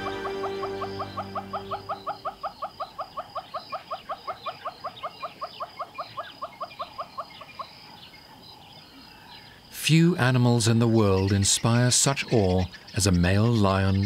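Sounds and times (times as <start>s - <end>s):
intro music: 0.0s - 2.4s.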